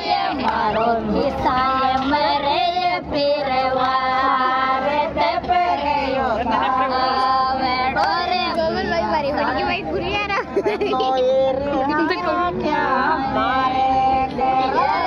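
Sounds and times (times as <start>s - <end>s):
women singing folk song: 0.0s - 10.1s, 10.9s - 15.0s.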